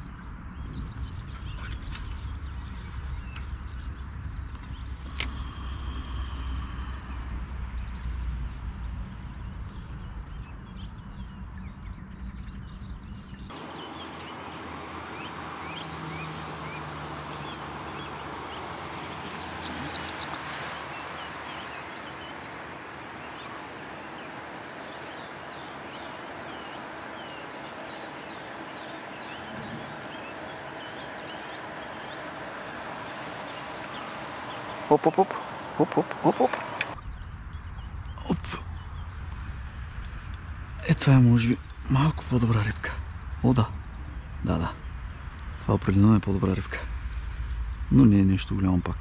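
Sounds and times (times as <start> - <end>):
bird chirps: 9.7 - 39.2
insect trill: 13.5 - 37.0.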